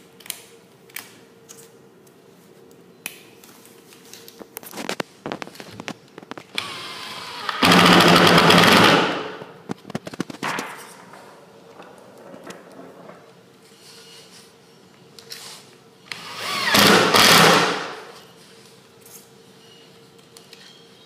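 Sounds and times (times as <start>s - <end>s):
cordless drill cutting wood: 6.6s - 9.1s, 16.1s - 17.8s.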